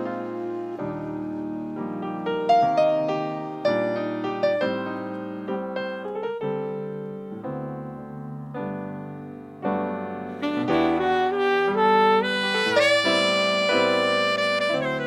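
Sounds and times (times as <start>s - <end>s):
saxophone melody: 0.0s - 5.3s, 10.3s - 15.0s
jazz piano chords: 0.0s - 15.0s.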